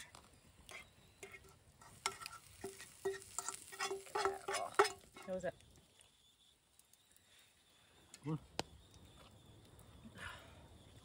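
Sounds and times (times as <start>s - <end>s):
food sizzling in pan: 0.7s - 6.2s
metal utensil tapping frying pan: 1.2s - 5.4s.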